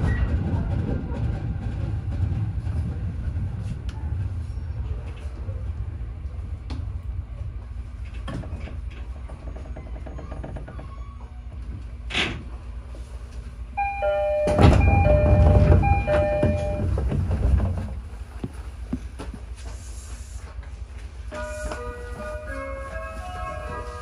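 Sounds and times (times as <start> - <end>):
electric train running on rails: 0.0 - 10.9, 11.6 - 24.0
two-pitched warning tone: 13.8 - 16.9.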